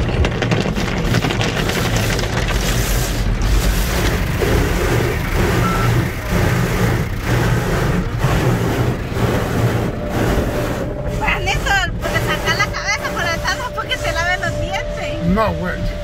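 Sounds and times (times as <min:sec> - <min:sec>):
low pulsing machinery drone: 0:00.0 - 0:16.0
water spraying: 0:00.8 - 0:14.8
cloth brushes sweeping against glass: 0:01.6 - 0:14.3.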